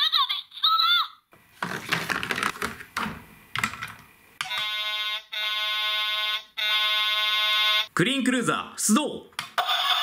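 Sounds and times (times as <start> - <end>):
toy electronic buzzing tone: 4.4 - 7.9, 9.6 - 10.0.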